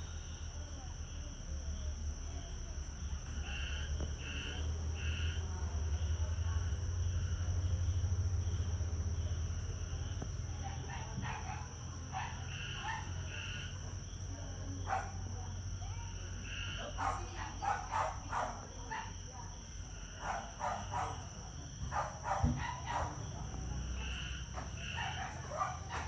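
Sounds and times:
insect chorus drone: 0.0 - 26.0.

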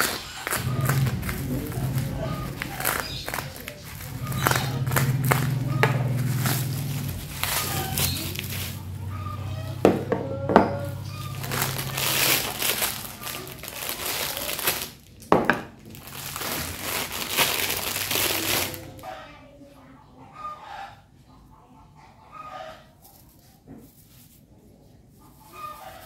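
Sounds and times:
plastic wrapping crinkling: 0.0 - 10.1, 10.8 - 19.0
wooden items knocking on table: 9.8 - 10.8, 15.3 - 15.8.

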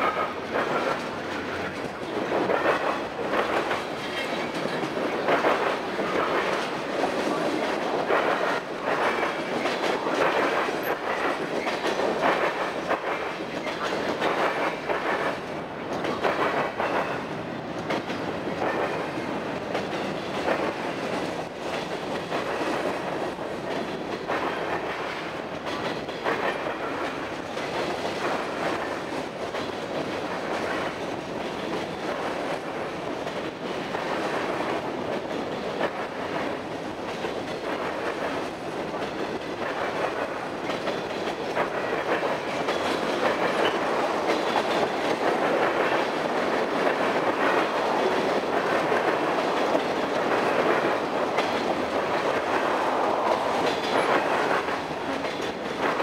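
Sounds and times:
steel wheels rumbling on rail: 0.0 - 56.0
wheels clicking over rail joints: 0.0 - 56.0.

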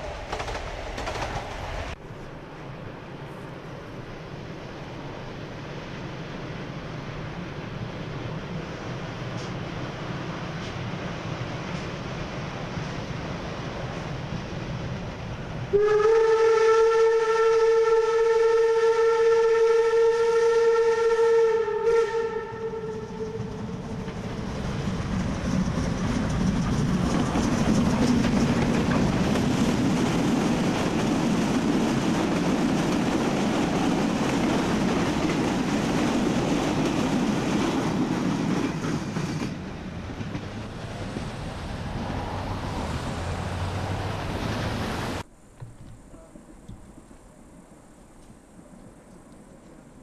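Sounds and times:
train running past: 0.0 - 45.3
steam locomotive whistle: 15.7 - 23.7
wheels on rails: 23.0 - 47.3.

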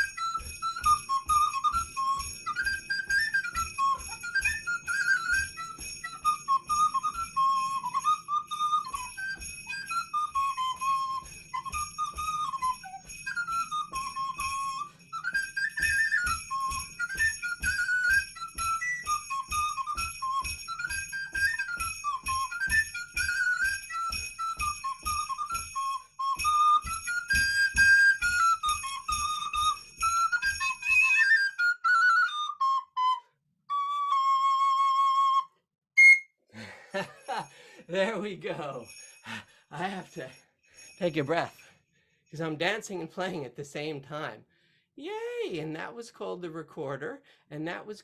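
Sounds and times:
bells jingling: 0.0 - 31.7, 36.6 - 44.4
recorder playing lively tune: 0.0 - 35.4, 36.0 - 36.3.

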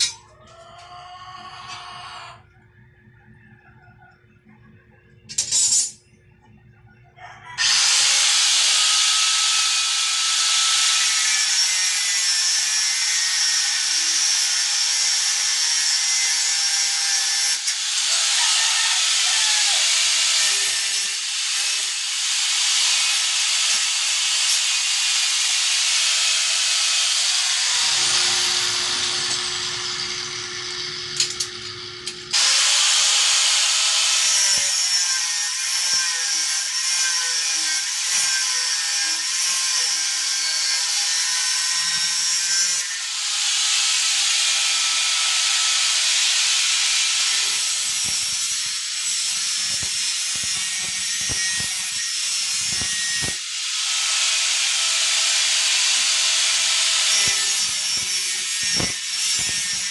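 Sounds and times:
angle grinder cutting metal: 7.6 - 59.9.

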